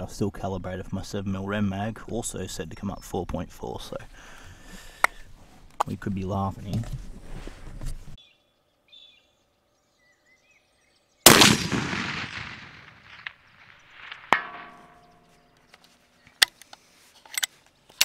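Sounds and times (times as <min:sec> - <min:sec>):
rifle shot echoing: 0:11.2 - 0:15.1.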